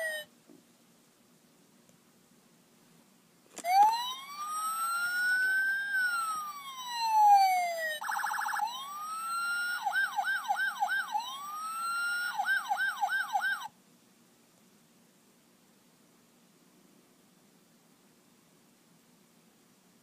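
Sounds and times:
electronic siren wailing and yelping: 3.6 - 13.7.

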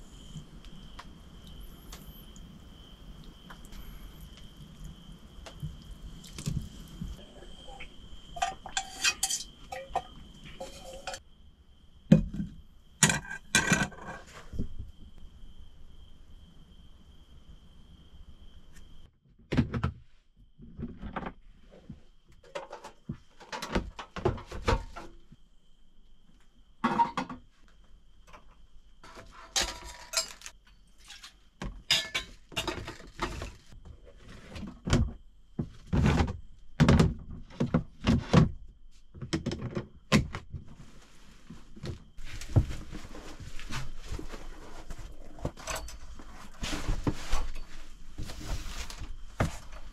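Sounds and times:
rustling: 40.7 - 49.9.

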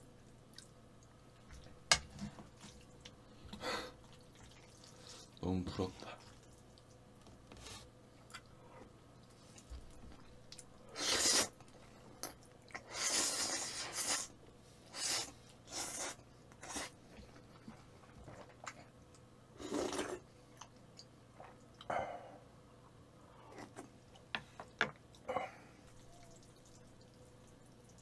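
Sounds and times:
quiet chewing: 6.0 - 10.8.

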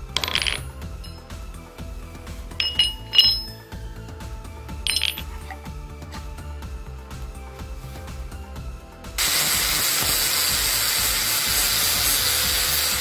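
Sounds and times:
steel hammer heads clinking: 0.0 - 1.4, 2.5 - 3.8, 4.8 - 5.6
background music: 0.0 - 13.0.

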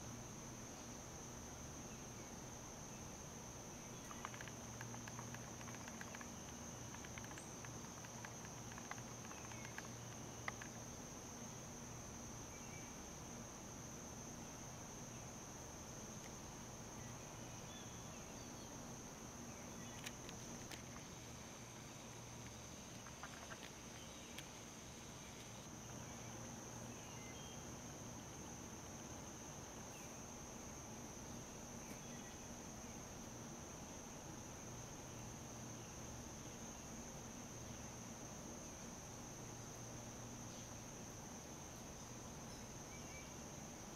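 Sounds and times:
crickets chirping: 0.0 - 43.9
faint low hum: 0.0 - 43.9
insect chorus trilling: 0.0 - 43.9
faint ticks: 3.9 - 10.9, 19.8 - 24.6.

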